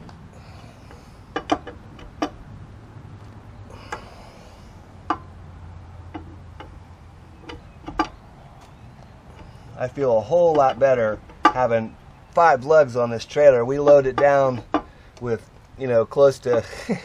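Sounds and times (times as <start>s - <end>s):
steady low hum: 0.0s - 17.0s
lug wrench metallic clicks: 0.8s - 2.5s, 3.2s - 4.2s, 6.0s - 6.8s, 7.4s - 9.6s.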